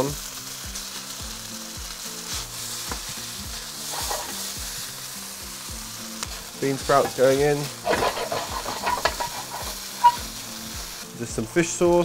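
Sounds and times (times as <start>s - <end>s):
noodles sizzling in a wok: 0.0s - 12.0s.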